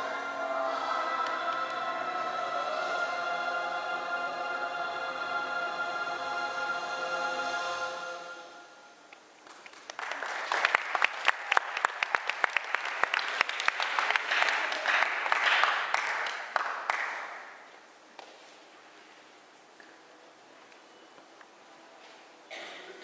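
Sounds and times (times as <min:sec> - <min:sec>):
audience clapping: 0:09.4 - 0:18.3.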